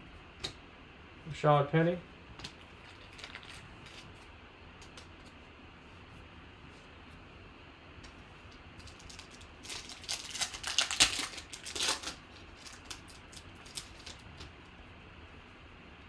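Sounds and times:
foil wrapper tearing and crinkling: 2.8s - 4.1s, 8.8s - 14.5s.

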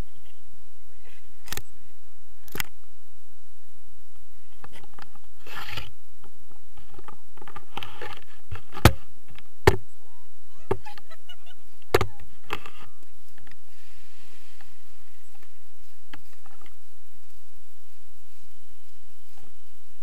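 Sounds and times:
camera handling rubbing and rustling: 4.5s - 6.0s, 6.8s - 9.8s, 14.6s - 16.8s.

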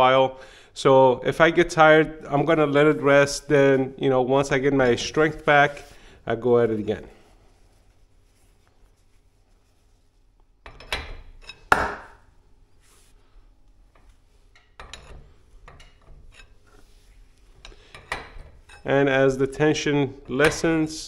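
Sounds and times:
metal rods knocking and scraping: 10.7s - 11.7s, 13.9s - 16.9s, 17.5s - 19.0s, 20.3s - 21.0s.

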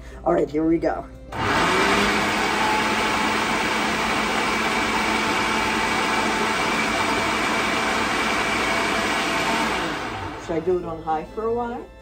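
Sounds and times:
blender running: 1.3s - 10.9s.

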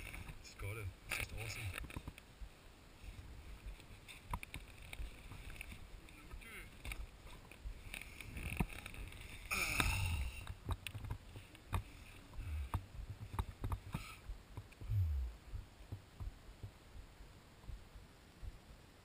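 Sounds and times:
small knocks and clicks: 1.1s - 2.3s, 3.8s - 14.9s.

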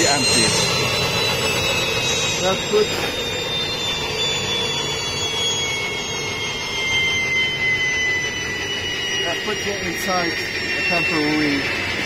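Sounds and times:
gas turbine rushing noise: 0.0s - 12.0s
high whines falling in pitch: 0.0s - 12.0s.

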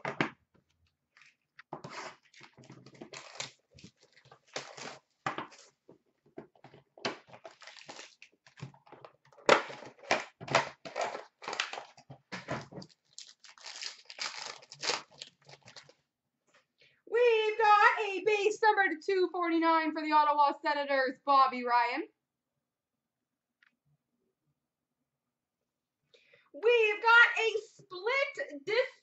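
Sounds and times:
wrappers crinkling and tearing: 2.0s - 5.7s, 7.3s - 8.6s, 10.9s - 12.0s, 12.8s - 16.0s.

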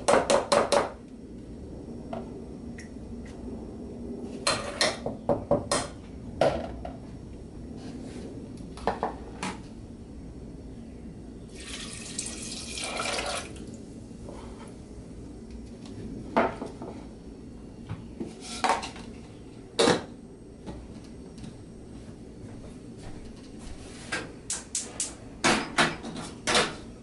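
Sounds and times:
liquid pouring into saucepan: 11.5s - 13.8s
kitchenware clinks and knocks: 25.4s - 26.8s.

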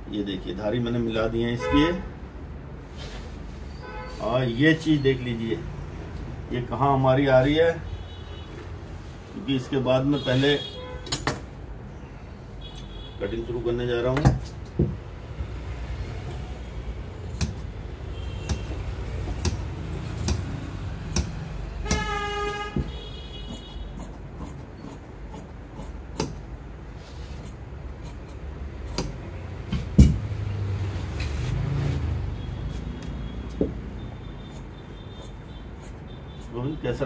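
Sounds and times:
vehicle horn: 1.6s - 2.0s, 3.8s - 4.6s, 10.1s - 11.2s, 12.6s - 13.3s, 18.1s - 18.8s, 21.8s - 24.0s
shears snipping fabric: 18.4s - 22.2s.

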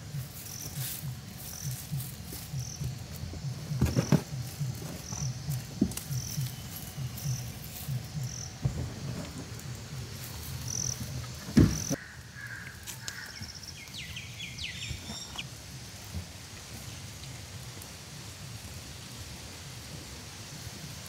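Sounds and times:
birds chirping: 0.0s - 15.9s
insects chirping: 0.0s - 21.0s
thump: 11.5s - 12.0s.

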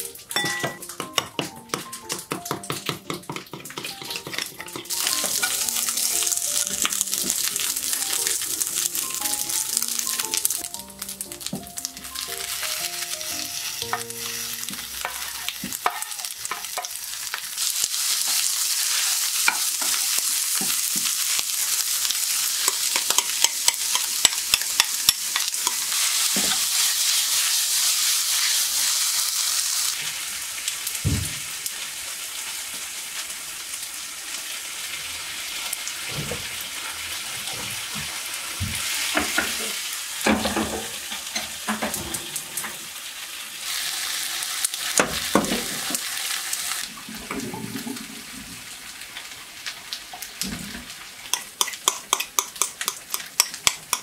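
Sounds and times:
food sizzling in a frying pan: 0.0s - 54.0s
spatula clicking and scraping pan: 0.8s - 5.9s, 18.2s - 21.4s, 22.4s - 28.6s, 51.2s - 54.0s.

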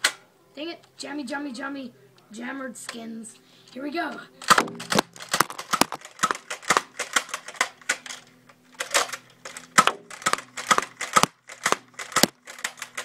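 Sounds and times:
toy blaster clacking and firing: 4.4s - 13.0s.

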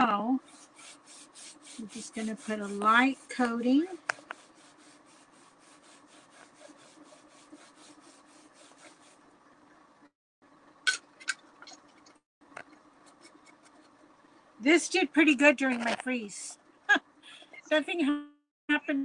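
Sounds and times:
sponge rubbing on board: 0.4s - 9.3s.

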